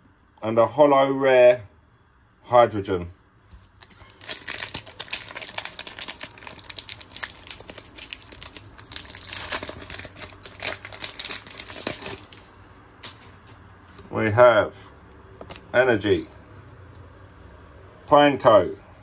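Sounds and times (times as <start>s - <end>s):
foil wrapper tearing and crinkling: 3.6s - 12.4s.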